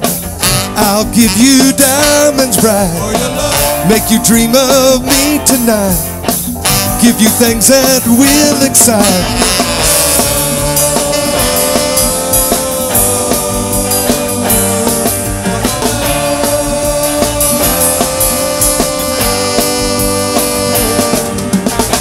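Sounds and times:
live rock band playing: 0:00.0 - 0:22.0
lead instrument holding long notes: 0:06.6 - 0:22.0.

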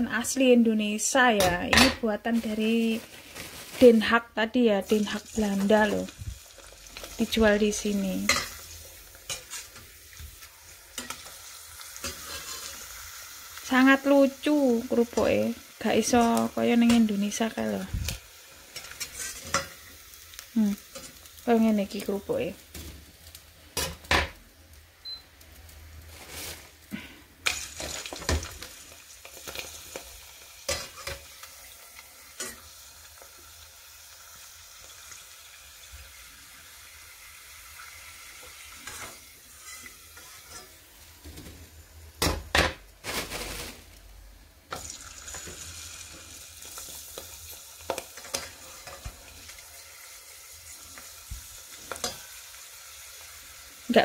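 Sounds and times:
hot oil sizzling: 0:00.0 - 0:54.0
metal spatula scraping pot: 0:09.3 - 0:09.9, 0:12.0 - 0:12.8, 0:18.8 - 0:19.8, 0:38.8 - 0:40.8.

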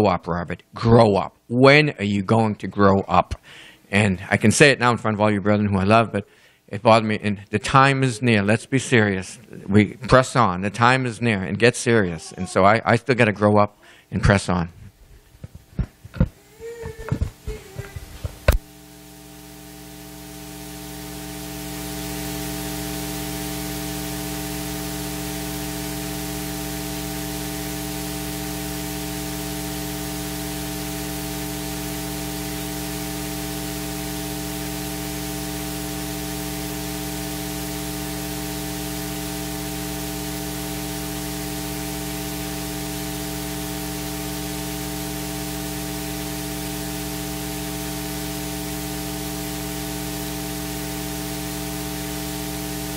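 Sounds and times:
electrical mains hum: 0:00.0 - 0:52.9
static hiss: 0:15.5 - 0:52.9.

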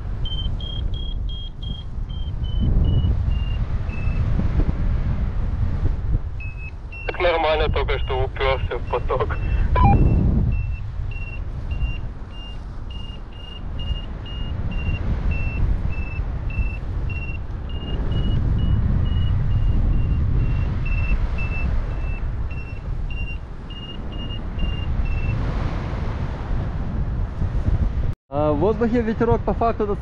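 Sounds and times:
wind rumble on microphone: 0:00.0 - 0:30.0
variometer beeping: 0:00.1 - 0:04.2, 0:06.4 - 0:07.3, 0:07.9 - 0:25.4.

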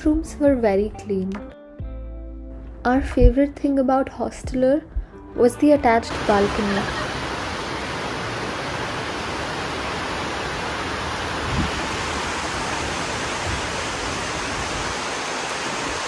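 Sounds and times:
steady rushing noise: 0:06.1 - 0:16.0.

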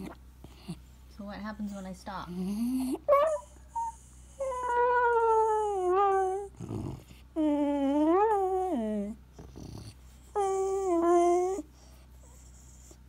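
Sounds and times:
dog breath: 0:00.0 - 0:01.0, 0:06.4 - 0:07.4, 0:09.3 - 0:13.0
dog whining: 0:02.3 - 0:13.0.

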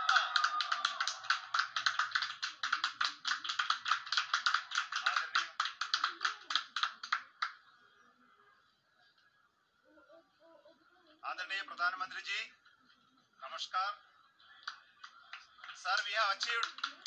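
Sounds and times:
crowd clapping and cheering: 0:00.0 - 0:07.7, 0:14.6 - 0:17.0
faint murmur of voices: 0:04.8 - 0:17.0.

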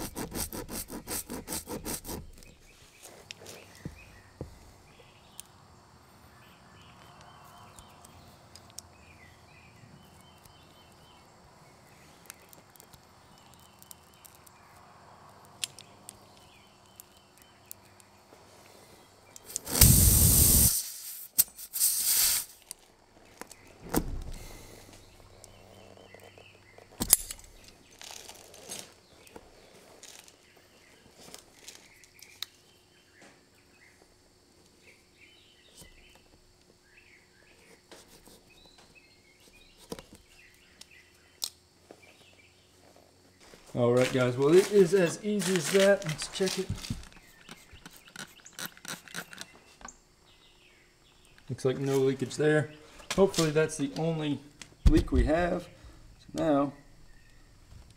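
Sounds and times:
birds chirping faintly: 0:02.2 - 0:20.1, 0:22.5 - 0:57.9
air rushing bursts: 0:19.6 - 0:22.6.

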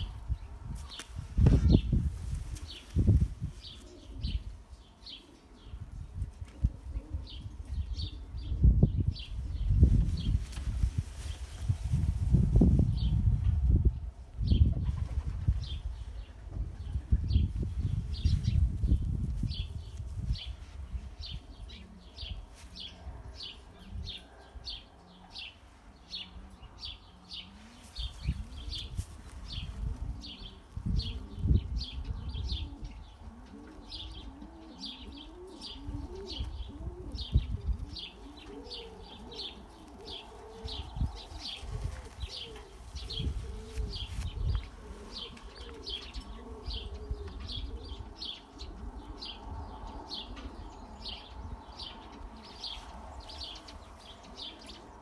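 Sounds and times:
pigeons cooing: 0:03.6 - 0:10.4, 0:20.6 - 0:55.0.

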